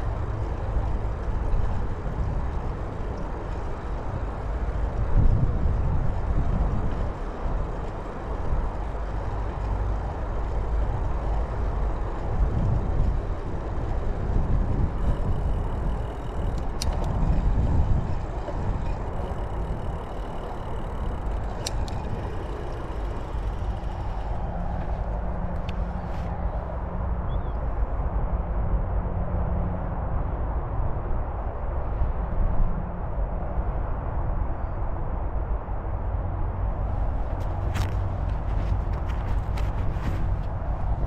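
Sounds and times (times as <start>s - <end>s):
wind buffeting microphone: 0.0s - 41.0s.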